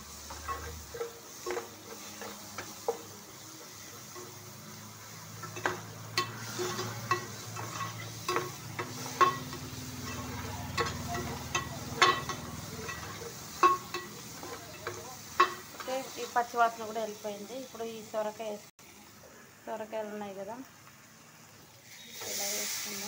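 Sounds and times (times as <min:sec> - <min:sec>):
metal spatula scraping a pan: 0:00.0 - 0:16.6
light sizzle of frying: 0:00.0 - 0:23.0.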